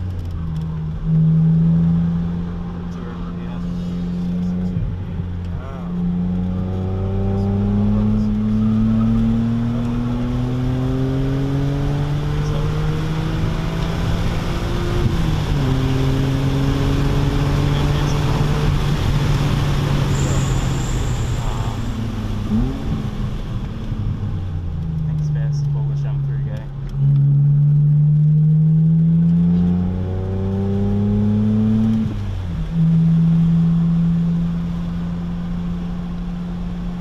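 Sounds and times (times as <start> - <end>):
car engine revving under full throttle: 0.0 - 37.0.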